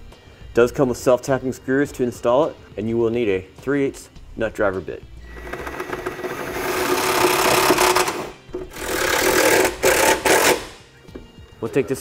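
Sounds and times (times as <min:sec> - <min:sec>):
power drill driving screws into metal: 0:05.3 - 0:10.8.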